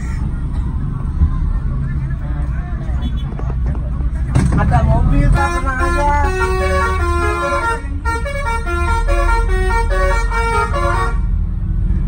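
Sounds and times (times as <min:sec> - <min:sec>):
low engine rumble: 0:00.0 - 0:12.0
bus melody horn tune: 0:05.3 - 0:11.4.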